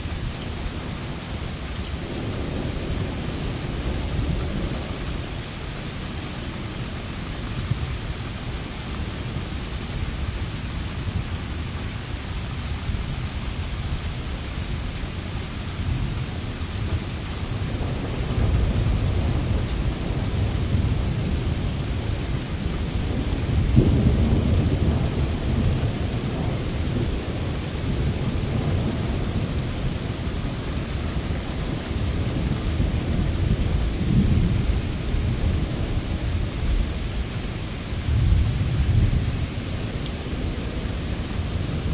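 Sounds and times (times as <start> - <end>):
steady rain: 0.0 - 41.9
thunder rumbling: 17.2 - 41.9.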